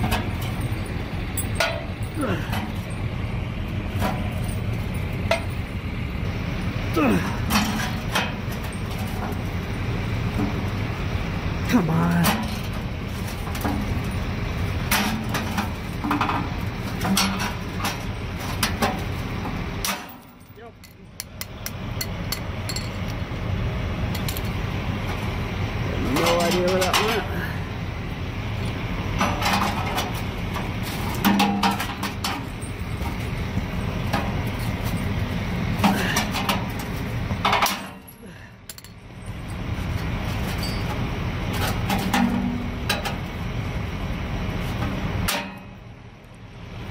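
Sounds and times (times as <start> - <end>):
metal clanks: 0.0 - 3.0, 3.9 - 5.8, 7.3 - 9.5, 12.1 - 23.2, 29.2 - 33.4, 34.0 - 39.6, 40.4 - 43.3, 45.2 - 45.9
engine idling: 0.0 - 46.9
low vehicle rumble: 0.0 - 46.9
wrench clinking and scraping metal: 19.9 - 23.2, 24.1 - 24.6, 35.8 - 39.6, 40.4 - 41.0.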